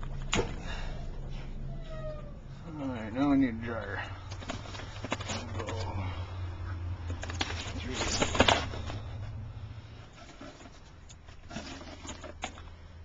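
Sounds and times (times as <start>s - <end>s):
cardboard box rustling: 4.2s - 6.0s, 7.1s - 9.4s, 10.0s - 12.7s.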